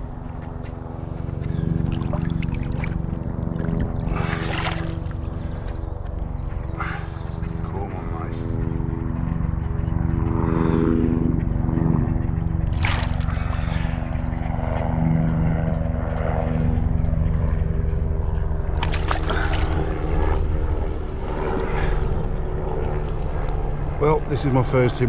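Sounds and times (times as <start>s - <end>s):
low engine drone: 0.0s - 25.0s
fish splashing in water: 1.8s - 5.6s, 12.7s - 14.0s, 18.8s - 20.2s.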